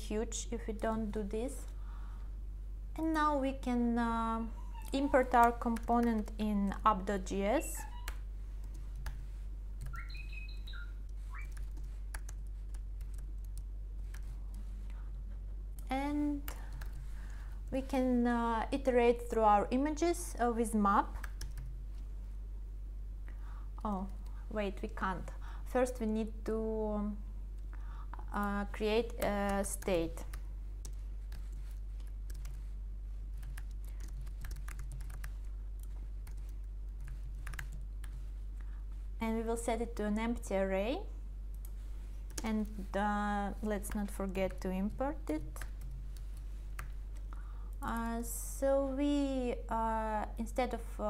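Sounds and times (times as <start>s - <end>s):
steady low hum: 0.0s - 51.0s
keyboard typing: 4.8s - 6.5s, 7.9s - 14.7s, 21.2s - 21.7s, 29.0s - 32.7s, 33.3s - 38.3s
bird chirping: 9.9s - 11.6s.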